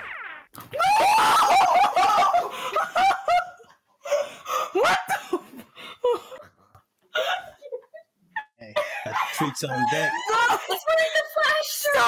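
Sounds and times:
girls laughing and shrieking: 0:00.8 - 0:03.7, 0:08.9 - 0:12.0.

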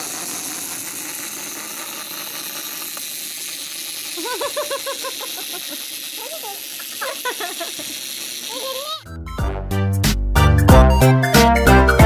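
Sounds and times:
clockwork toys whirring and rattling: 0:00.0 - 0:09.1.

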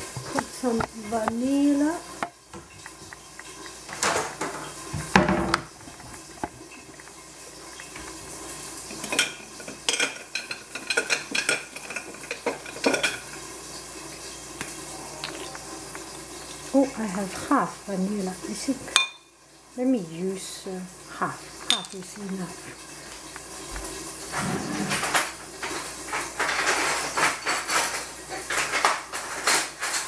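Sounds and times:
kitchen items clattering on tiles: 0:00.0 - 0:14.4, 0:21.5 - 0:30.0.

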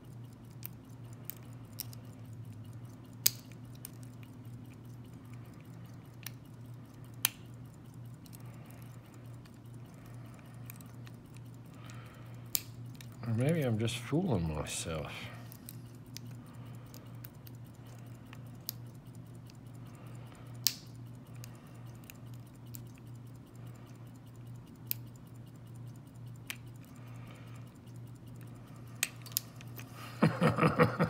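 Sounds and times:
lock pick ticking and scraping: 0:00.0 - 0:29.9
steady low hum: 0:00.0 - 0:31.0
sharp lock clicks: 0:03.1 - 0:04.0.

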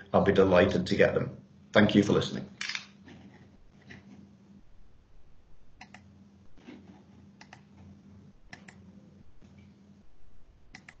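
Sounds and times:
low steady hum: 0:00.0 - 0:11.0
computer mouse clicks: 0:05.8 - 0:07.9, 0:08.5 - 0:08.8, 0:10.7 - 0:11.0.

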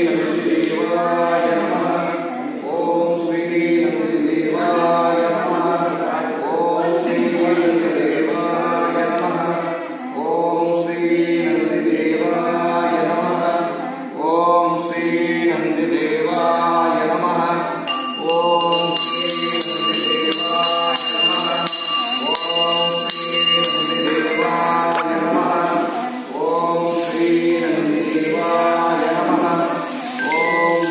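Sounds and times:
voices chanting a mantra: 0:00.0 - 0:30.9
bell ringing rapidly: 0:17.9 - 0:25.0, 0:30.1 - 0:30.9.

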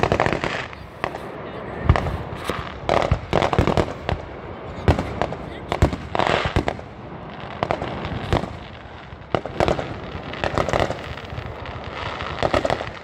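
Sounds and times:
fireworks shells bursting: 0:00.0 - 0:06.9
fireworks crackling: 0:00.0 - 0:13.0.

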